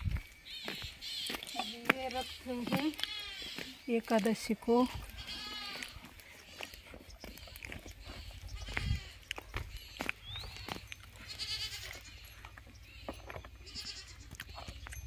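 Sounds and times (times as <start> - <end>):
goats bleating: 1.0 - 3.9, 4.8 - 9.4, 10.5 - 12.3, 13.6 - 14.7.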